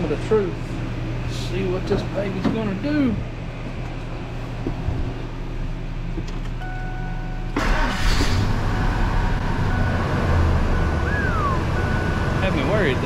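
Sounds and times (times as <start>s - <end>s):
engine cranking and firing: 7.5s - 9.4s
steady high tone: 8.9s - 13.0s.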